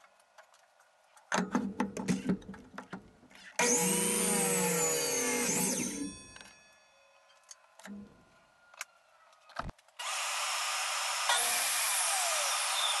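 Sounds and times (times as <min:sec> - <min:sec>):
miter saw motor whining: 0:03.6 - 0:06.2, 0:10.0 - 0:13.0.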